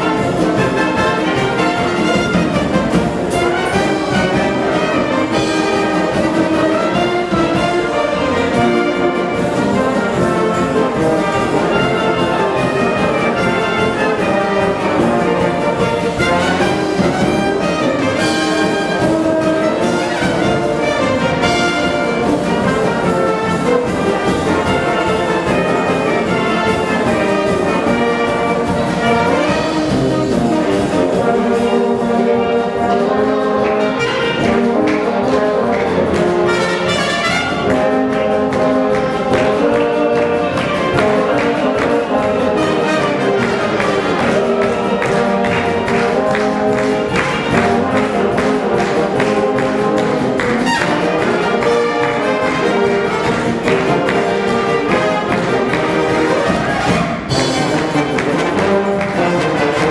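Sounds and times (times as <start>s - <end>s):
wind band playing: 0.0s - 59.9s.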